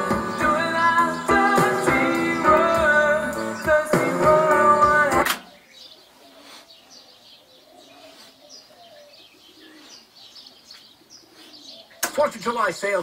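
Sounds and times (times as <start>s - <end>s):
faint bird chirps: 5.5s - 12.1s.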